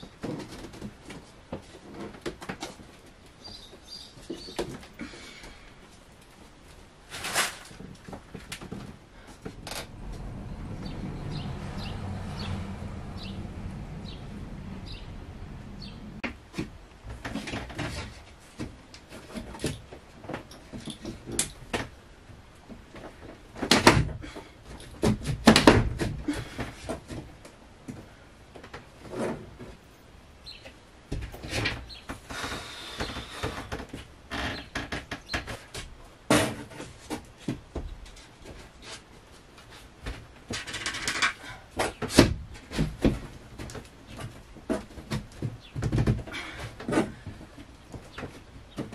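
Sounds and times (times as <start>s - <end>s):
wood scraping: 7.0s - 22.0s.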